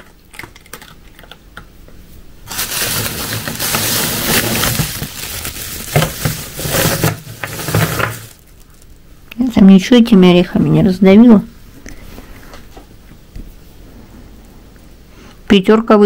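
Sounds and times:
plastic bag crinkling: 2.5 - 9.2.

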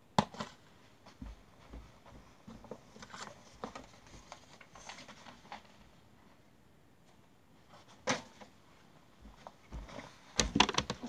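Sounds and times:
footsteps close by: 9.0 - 10.6.

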